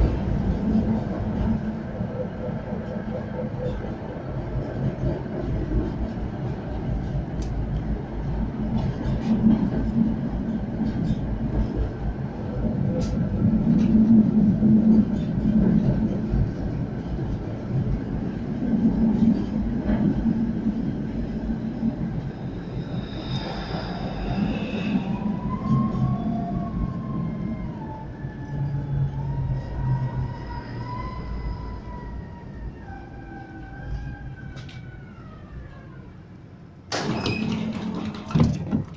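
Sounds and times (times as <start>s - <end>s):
tram drive low hum: 0.0s - 38.9s
wheels rumbling on rails: 0.0s - 38.9s
folding doors opening: 36.9s - 38.9s.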